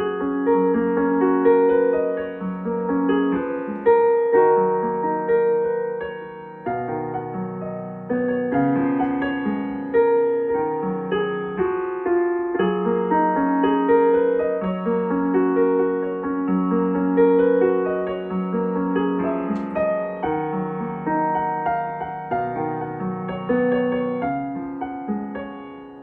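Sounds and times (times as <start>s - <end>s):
slow solo piano music: 0.0s - 26.0s.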